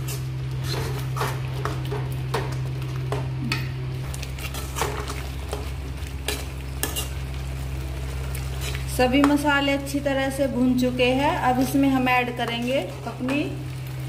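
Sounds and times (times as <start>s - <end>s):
metal spoon scraping a pan: 0.0s - 2.5s, 3.5s - 7.3s, 8.4s - 9.4s, 11.5s - 13.5s
paste sizzling: 0.0s - 14.0s.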